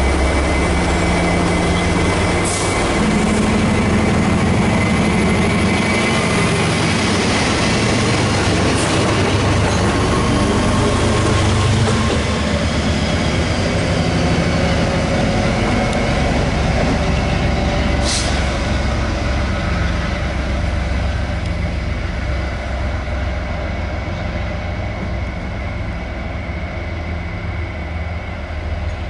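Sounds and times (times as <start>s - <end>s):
diesel locomotive rumbling: 0.0s - 29.0s.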